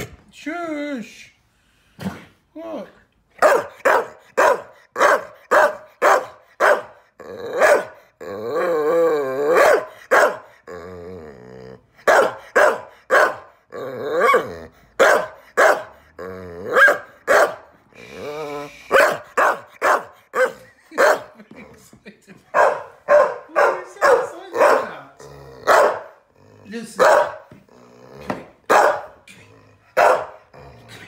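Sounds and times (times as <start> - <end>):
dog barking: 3.4 - 7.0, 7.6 - 8.0, 9.5 - 10.6, 12.0 - 13.6, 14.2 - 16.0, 16.7 - 17.7, 18.9 - 21.4, 22.5 - 25.0, 25.6 - 26.2, 27.0 - 27.5, 28.7 - 29.2, 30.0 - 30.4
dog howling: 7.2 - 11.3, 13.3 - 14.7.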